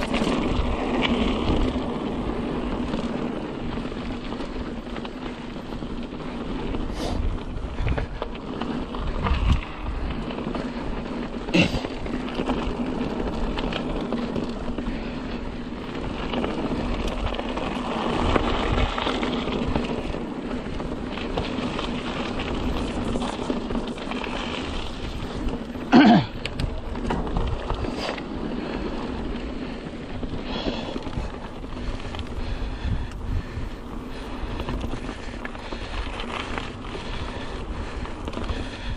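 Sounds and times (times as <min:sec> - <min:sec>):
bike tyres rumbling and rattling: 0:00.0 - 0:38.9
wind on microphone: 0:06.4 - 0:10.6, 0:15.9 - 0:25.8, 0:30.1 - 0:38.9.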